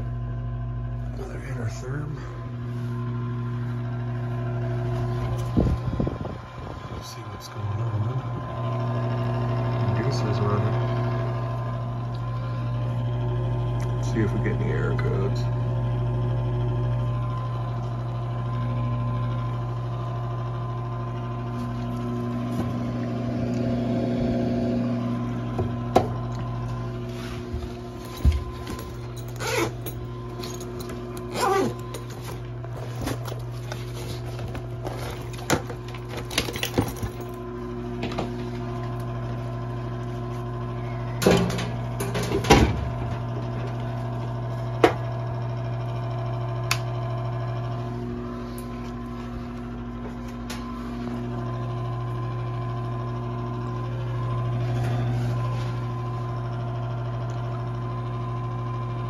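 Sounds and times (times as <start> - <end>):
furnace inducer motor humming: 0.0 - 59.0.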